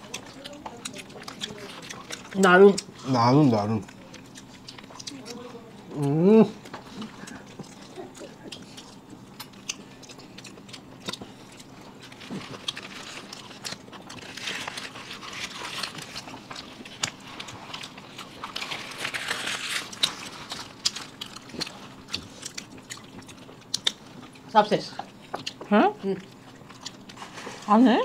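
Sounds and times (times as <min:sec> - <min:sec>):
chewing and biting: 0:00.0 - 0:27.8
paper wrapping crinkling: 0:11.6 - 0:22.8.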